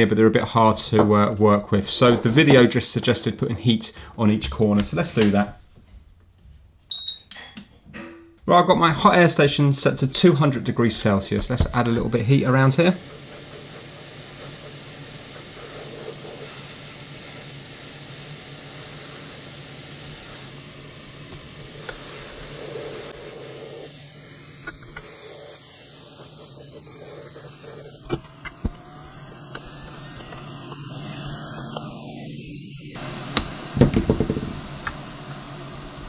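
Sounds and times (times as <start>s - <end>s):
hot air station fan blowing: 9.4s - 36.0s.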